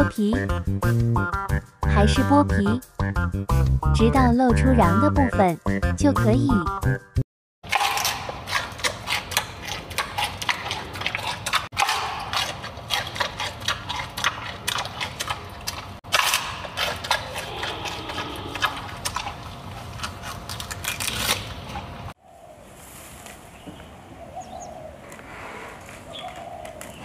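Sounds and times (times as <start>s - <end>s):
panda chewing bamboo: 7.7s - 22.0s.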